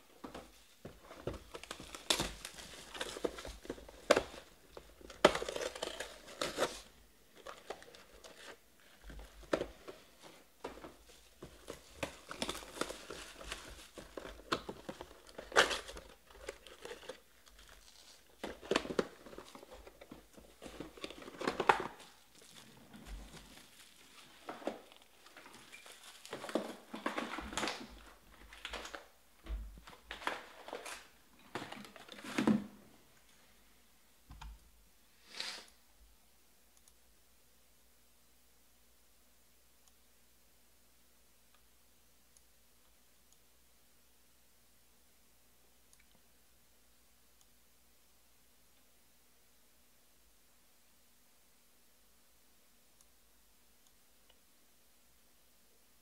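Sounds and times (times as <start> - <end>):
foil packs crinkling: 11.4 - 29.0.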